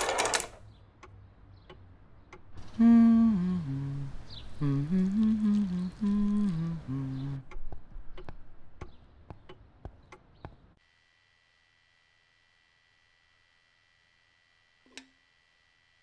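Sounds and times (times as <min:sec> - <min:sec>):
faint high whine: 0:02.6 - 0:07.4
person humming a tune: 0:02.6 - 0:08.3.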